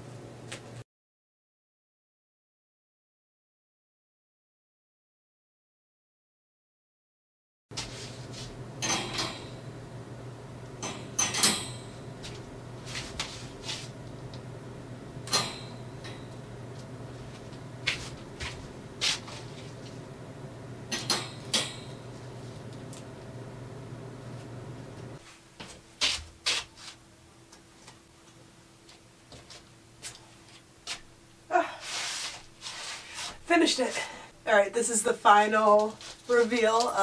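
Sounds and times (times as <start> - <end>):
steady low hum: 7.7 - 26.4.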